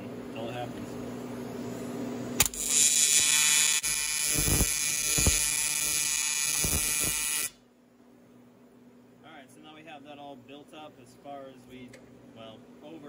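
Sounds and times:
welding arc buzzing: 2.4 - 7.6
welding arc striking crack: 2.4 - 7.6.

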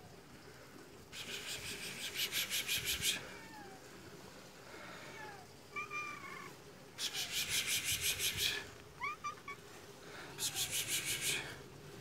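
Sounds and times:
cat meowing: 5.2 - 6.6.

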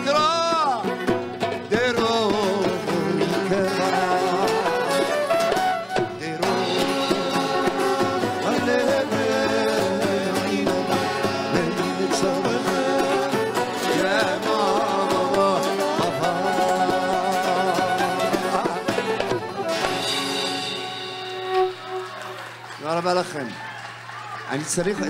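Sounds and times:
hand drum: 0.0 - 22.2
acoustic guitar: 0.0 - 23.0.

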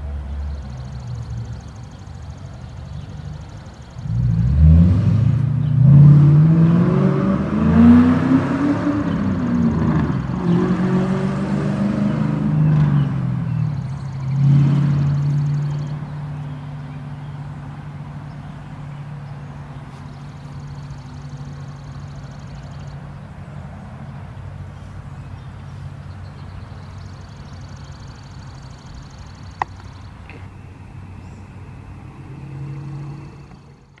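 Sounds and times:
outdoor background noise: 0.0 - 34.0
low mechanical hum: 28.0 - 34.0.

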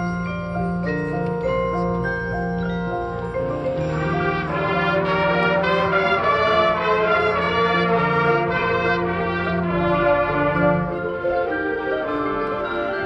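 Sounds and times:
brass sustained chords: 3.1 - 13.0
marching band playing: 3.5 - 13.0.

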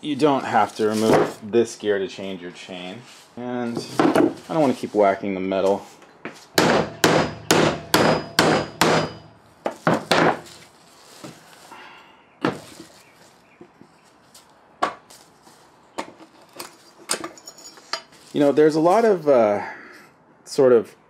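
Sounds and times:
hammer striking metal gear: 6.6 - 9.3.

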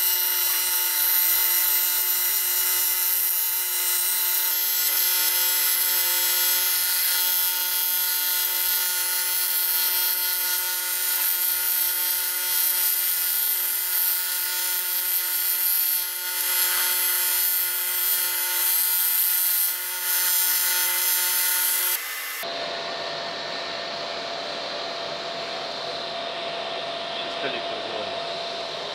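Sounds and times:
welding arc buzzing: 0.0 - 28.0.

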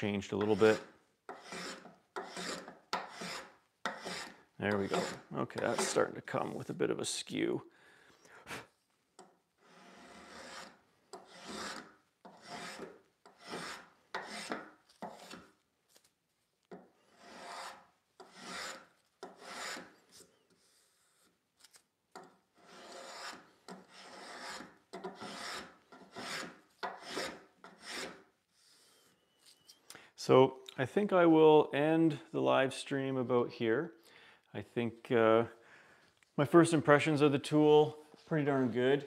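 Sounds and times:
spokeshave cutting wood strokes: 0.4 - 6.0, 9.6 - 15.5, 17.1 - 21.3, 22.6 - 29.0.

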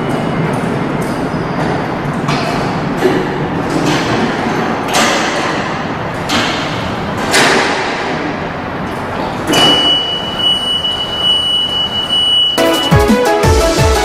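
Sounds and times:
steady high warning beep: 9.5 - 12.9.

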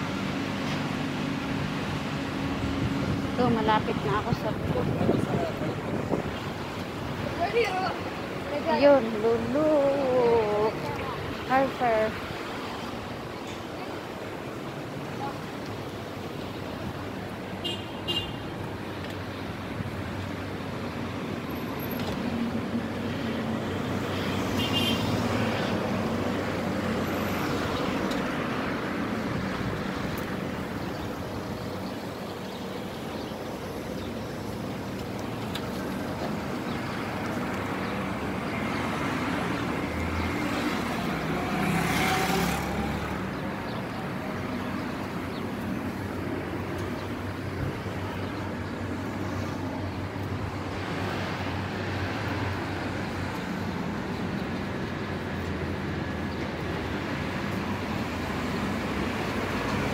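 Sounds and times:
cars driving past: 33.0 - 59.9
vehicle passing loudly: 38.6 - 43.4.

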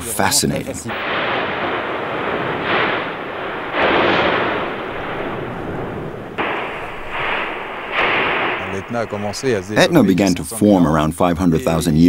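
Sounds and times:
volcanic blasts: 0.9 - 10.6
volcano gas hissing: 1.0 - 10.4.

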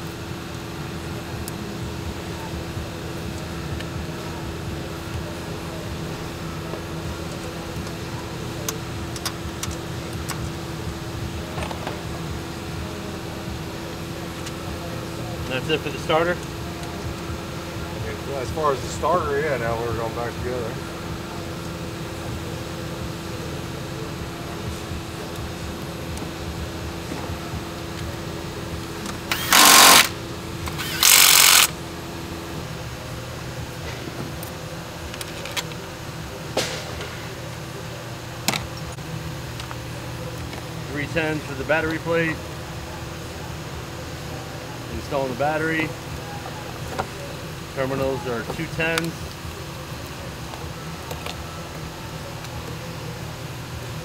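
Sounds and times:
steady hum: 0.0 - 54.0
power tool bursts: 29.3 - 31.8.

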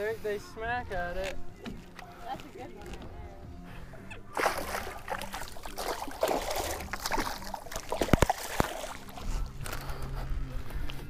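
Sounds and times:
water splashing against boat: 4.1 - 9.8.

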